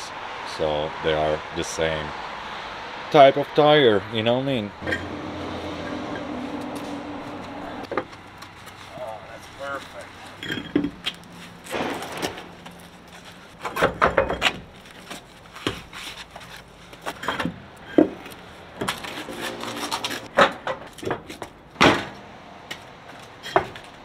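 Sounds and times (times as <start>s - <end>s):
knocks and clunks on truck: 13.6s - 14.8s, 20.3s - 24.0s.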